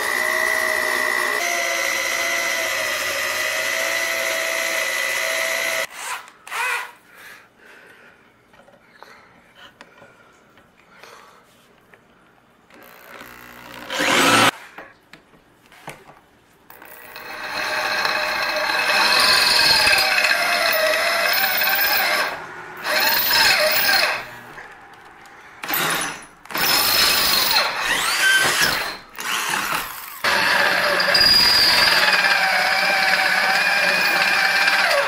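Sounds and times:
electric drill boring steel: 0:00.0 - 0:06.9, 0:12.8 - 0:14.5, 0:16.7 - 0:24.4, 0:25.6 - 0:35.0
drill bit squealing: 0:17.0 - 0:24.3, 0:25.6 - 0:35.0.

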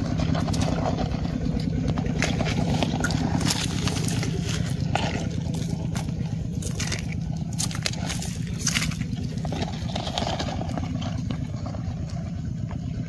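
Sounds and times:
steady low hum: 0:00.0 - 0:13.0
dry leaves crackling: 0:02.1 - 0:10.8.

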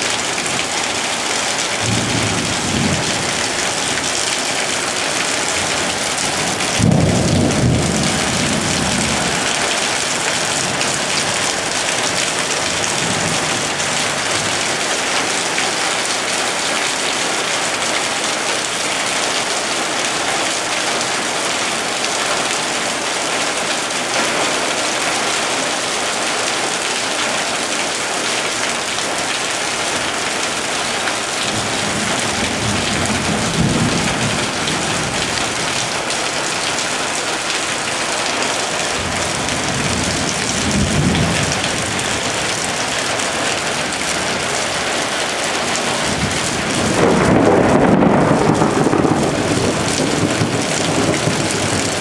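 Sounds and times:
heavy rain pouring on pavement: 0:00.0 - 0:52.0
thunder rumbles: 0:00.1 - 0:14.6, 0:31.4 - 0:36.8, 0:38.9 - 0:42.9, 0:45.9 - 0:52.0.

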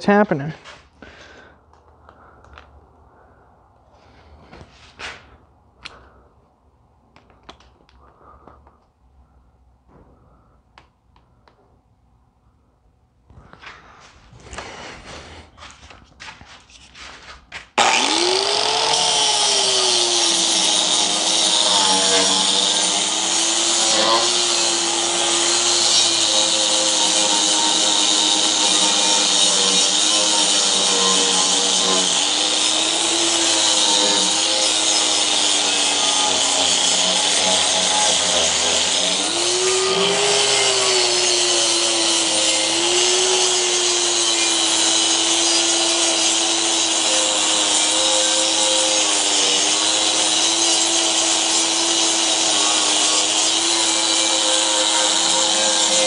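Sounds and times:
angle grinder grinding steel: 0:16.7 - 0:56.0.

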